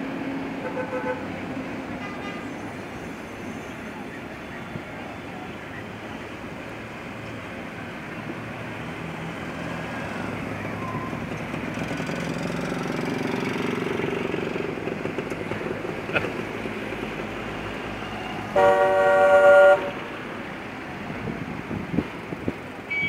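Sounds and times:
cars driving past: 0.0s - 23.0s
car horn: 0.6s - 1.3s, 2.0s - 2.6s, 18.2s - 20.1s.

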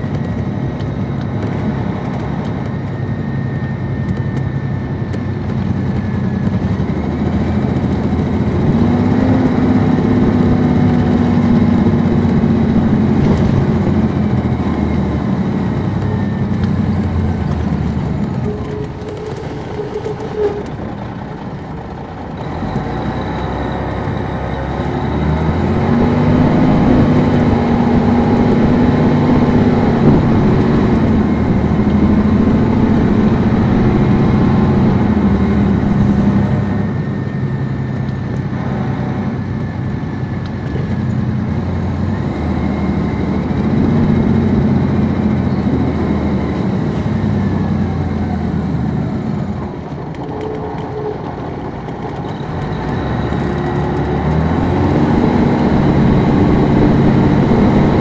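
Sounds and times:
diesel coach engine pulling hard: 0.0s - 58.0s.

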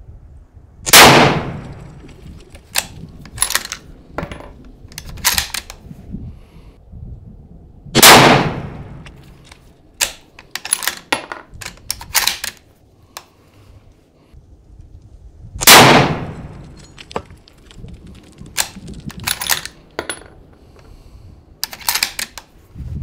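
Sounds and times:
rifle shot: 0.9s - 2.0s, 8.0s - 9.1s, 15.6s - 16.7s
rifle bolt clicking: 4.9s - 5.8s, 9.0s - 12.6s, 21.6s - 22.5s.

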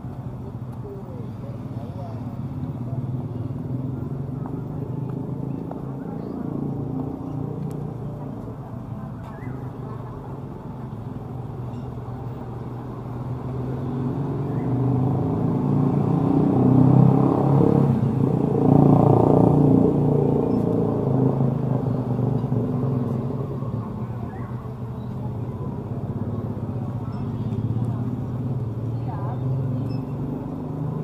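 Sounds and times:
vehicle engine passing: 12.4s - 31.0s.

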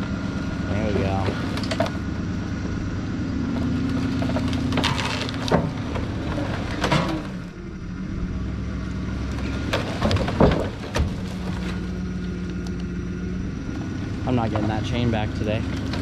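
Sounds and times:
wood scraping and creaking: 0.0s - 7.6s, 8.7s - 13.0s, 13.6s - 16.0s
pickup engine under load: 0.0s - 16.0s
wood cracks and knocks: 1.2s - 2.0s, 3.5s - 7.4s, 9.2s - 12.8s.

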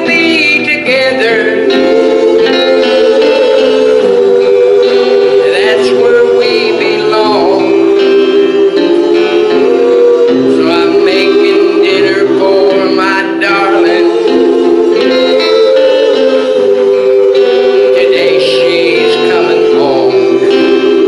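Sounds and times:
gospel music on electronic keyboard: 0.0s - 21.0s.

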